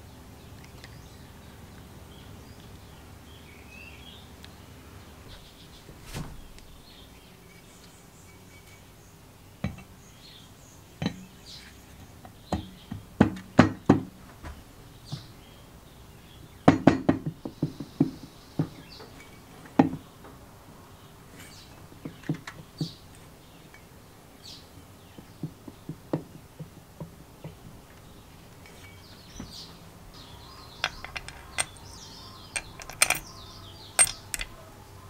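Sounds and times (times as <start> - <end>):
metal engine parts knocking together: 30.7 - 33.4, 34.0 - 34.6.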